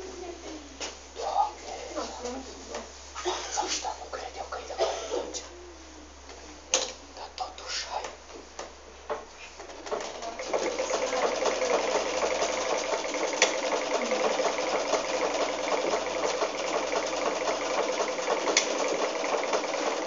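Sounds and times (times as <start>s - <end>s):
sewing machine running: 9.9s - 20.0s.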